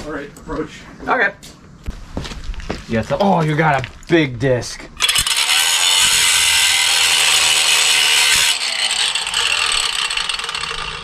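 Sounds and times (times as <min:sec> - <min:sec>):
abrasive disc grinding metal: 0:05.0 - 0:11.0.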